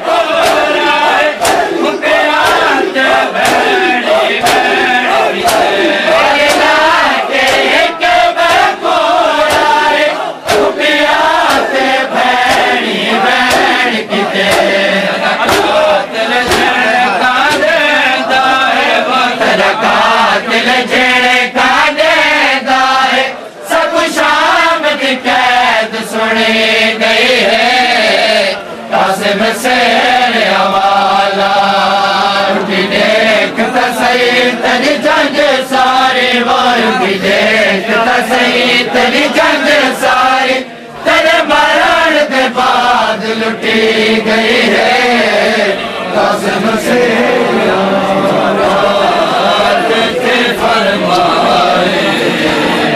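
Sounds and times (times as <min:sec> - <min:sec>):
men chanting a lament: 0:00.0 - 0:52.9
chest-beating slaps: 0:00.3 - 0:17.8.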